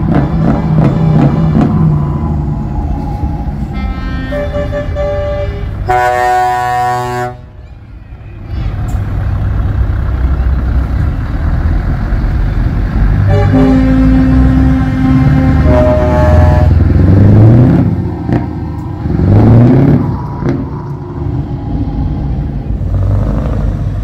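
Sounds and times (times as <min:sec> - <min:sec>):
truck engines rumbling: 0:00.0 - 0:24.0
truck air horn blast: 0:03.7 - 0:07.5, 0:13.2 - 0:16.9.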